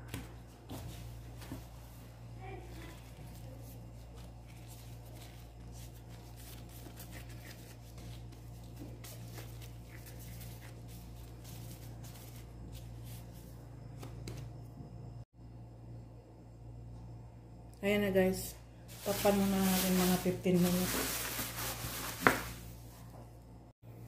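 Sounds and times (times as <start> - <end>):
steady low hum: 0.0 - 24.0
plastic gloves crinkling: 1.1 - 13.3, 18.9 - 22.9.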